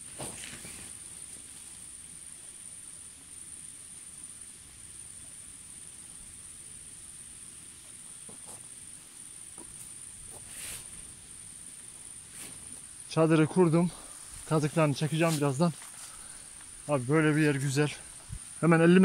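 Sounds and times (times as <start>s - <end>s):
tent rustling and tapping: 0.0s - 1.1s
insects chirring: 0.0s - 19.0s.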